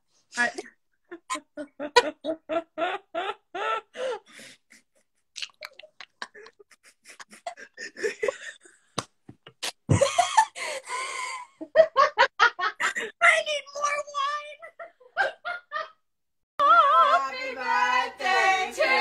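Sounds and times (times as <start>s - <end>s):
women laughing: 1.1s - 8.8s, 9.9s - 13.2s, 14.6s - 16.0s.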